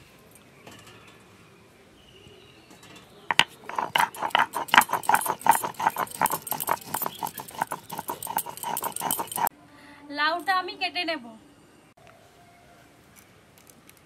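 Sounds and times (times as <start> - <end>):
stone grinding on stone: 3.3 - 9.5.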